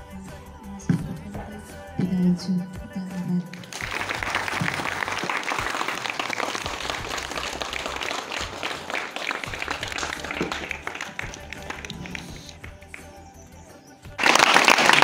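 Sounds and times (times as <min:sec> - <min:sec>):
audience applause: 0:03.5 - 0:13.1, 0:14.2 - 0:15.0.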